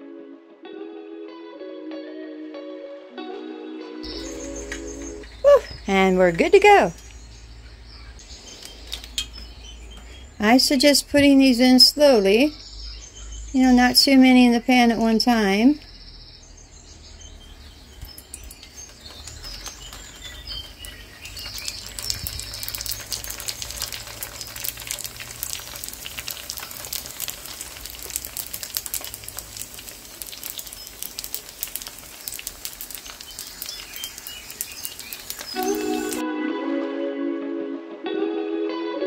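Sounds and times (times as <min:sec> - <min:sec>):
food frying in hot oil: 0:17.6 - 0:36.2.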